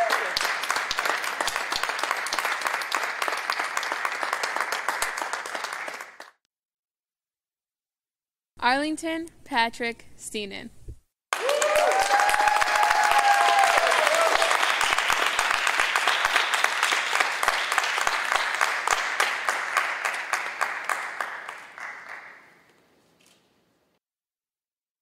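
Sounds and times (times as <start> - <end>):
people cheering: 0.0 - 6.0, 11.3 - 21.2
audience applauding: 0.0 - 6.4, 11.3 - 22.6.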